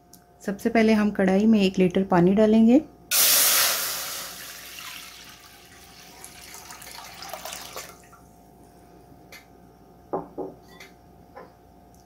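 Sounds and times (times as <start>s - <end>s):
water pouring into metal pan: 3.1s - 8.1s.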